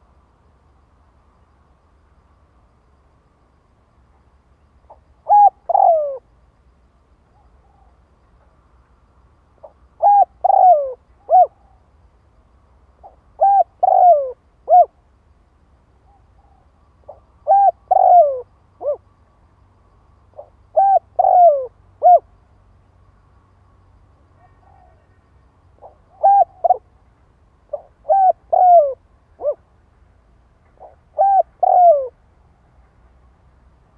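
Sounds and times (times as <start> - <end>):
dove cooing: 5.2 - 6.3, 9.6 - 11.8, 13.0 - 15.0, 16.1 - 19.0, 20.4 - 22.3, 24.4 - 25.2, 25.8 - 26.9, 27.7 - 29.6, 30.8 - 32.2.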